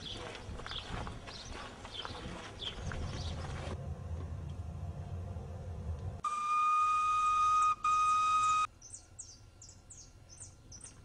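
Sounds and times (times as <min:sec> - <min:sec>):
low rumble: 0:02.9 - 0:06.2
steam locomotive whistle: 0:06.2 - 0:08.7.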